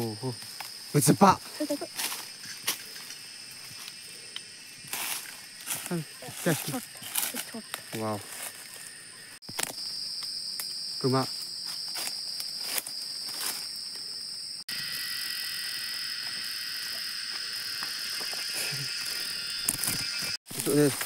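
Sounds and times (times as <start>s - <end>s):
cicadas buzzing: 0.0s - 21.0s.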